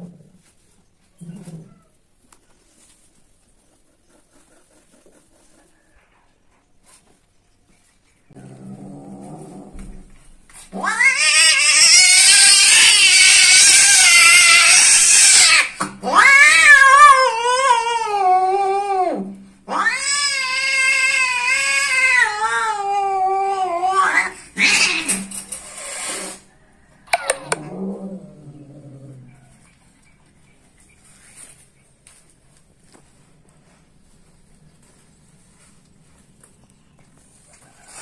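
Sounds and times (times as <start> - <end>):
cats caterwauling: 10.7 - 25.5, 27.1 - 29.7.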